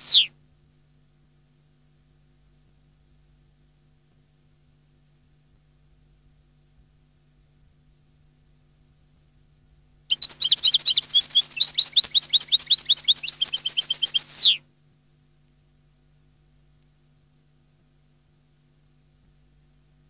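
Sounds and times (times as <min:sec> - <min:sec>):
bird singing high twittering notes: 0:00.0 - 0:00.3, 0:10.1 - 0:14.6.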